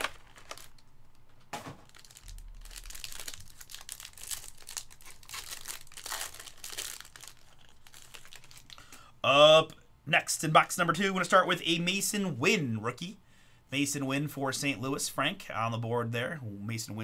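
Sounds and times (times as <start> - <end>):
foil pack tearing open: 0.0 - 0.8, 1.6 - 8.8
plastic wrapper crinkling: 0.0 - 9.0.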